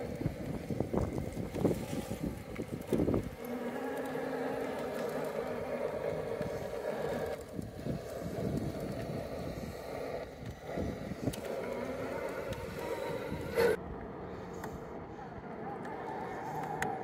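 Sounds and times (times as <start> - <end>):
electric motor and gearbox whining: 0.0 - 13.8.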